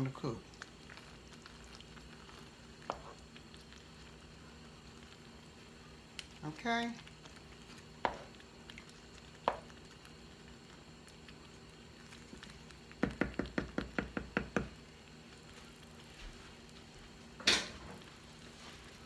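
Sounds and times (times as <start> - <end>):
wooden spoon knocking on pot: 13.0 - 14.8.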